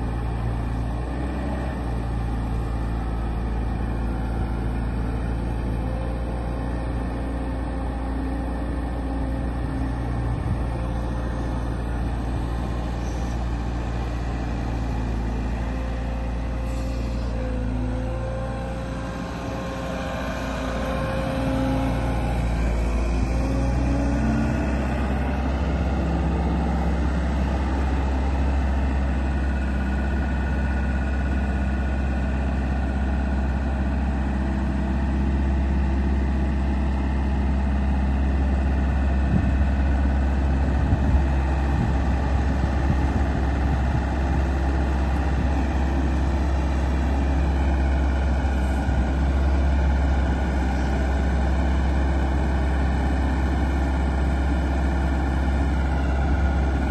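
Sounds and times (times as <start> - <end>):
excavator diesel engine running: 0.0 - 56.9.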